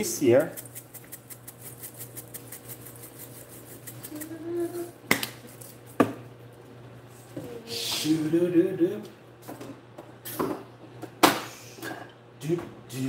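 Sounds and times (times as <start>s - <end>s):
pepper flakes rattling in shaker: 0.0s - 4.4s.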